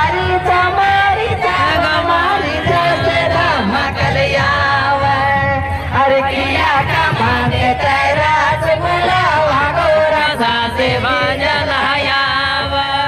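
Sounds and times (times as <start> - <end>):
man singing folk song amplified: 0.0 - 13.0.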